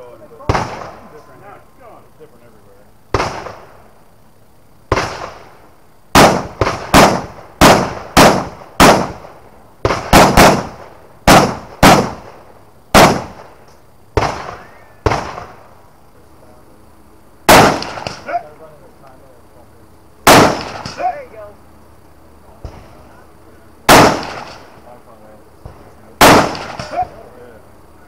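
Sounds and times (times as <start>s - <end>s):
rifle shots: 0.4s - 1.2s, 3.1s - 3.9s, 4.9s - 15.7s, 17.4s - 18.4s, 20.2s - 21.3s, 23.9s - 24.8s, 25.6s - 27.2s.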